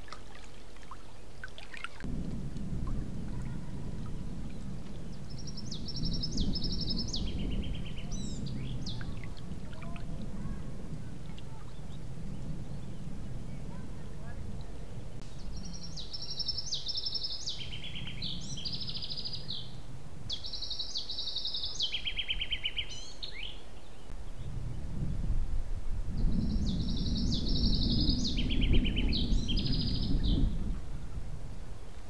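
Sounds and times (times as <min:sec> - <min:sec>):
songbird trilling: 0:03.4 - 0:13.8, 0:15.3 - 0:24.4, 0:26.4 - 0:30.5.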